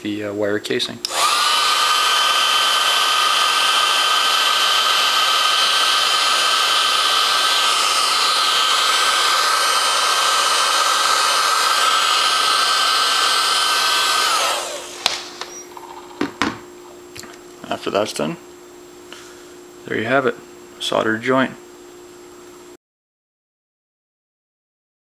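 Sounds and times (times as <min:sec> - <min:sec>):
heat gun blowing with fan whine: 0:01.0 - 0:18.3.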